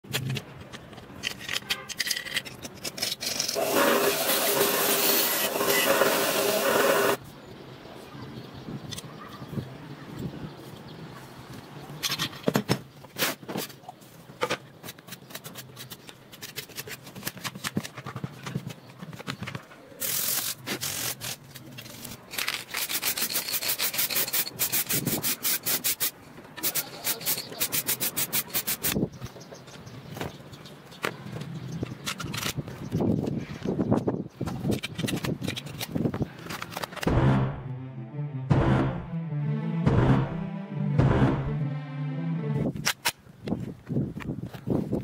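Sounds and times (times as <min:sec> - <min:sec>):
scrubbing metal parts: 0:00.0 - 0:07.2, 0:20.0 - 0:29.0.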